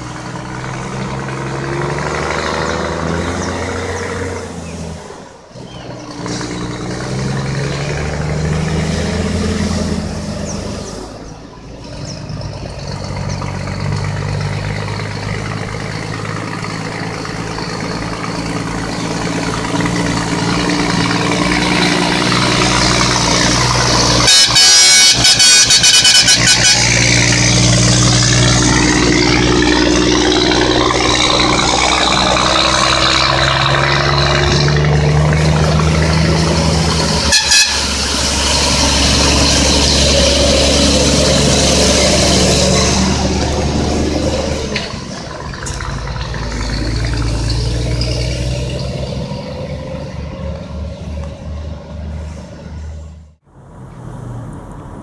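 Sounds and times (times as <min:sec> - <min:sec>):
diesel truck engines accelerating: 0:00.0 - 0:55.0
air horn blasts: 0:23.7 - 0:28.0, 0:37.0 - 0:39.6.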